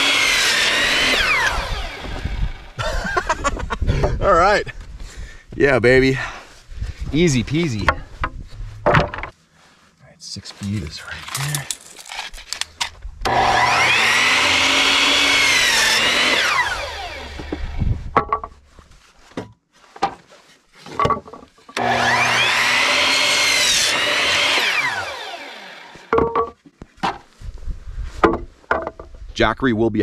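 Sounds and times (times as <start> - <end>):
miter saw cutting wood: 0.0 - 2.8, 13.2 - 17.9, 21.8 - 26.2
knocks of boards handled: 7.8 - 9.3, 18.2 - 18.6, 20.9 - 21.5, 26.1 - 27.3, 28.2 - 29.1.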